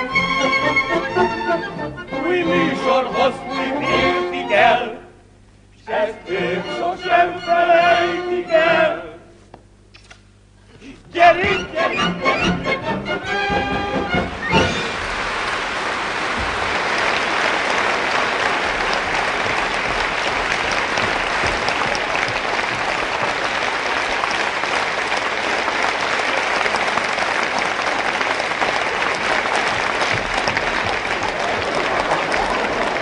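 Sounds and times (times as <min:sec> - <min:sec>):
audience applauding: 0:14.0 - 0:33.0.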